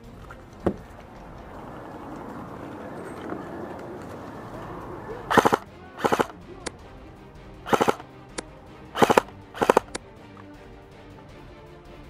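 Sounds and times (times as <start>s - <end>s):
airsoft rifle bursts: 2.0s - 6.8s, 7.7s - 10.0s.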